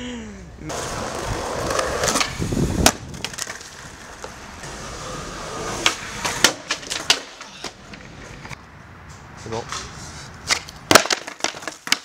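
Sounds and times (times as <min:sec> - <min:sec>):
skateboard deck clacking: 0:00.7 - 0:04.7, 0:05.4 - 0:08.6, 0:10.5 - 0:12.0
skateboard wheels rolling on pavement: 0:00.7 - 0:12.0.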